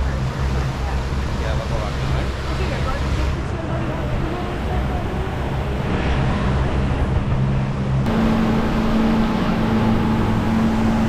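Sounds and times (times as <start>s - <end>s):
boat engine hum: 0.0s - 11.0s
rushing wind: 0.0s - 11.0s
water noise: 0.0s - 11.0s.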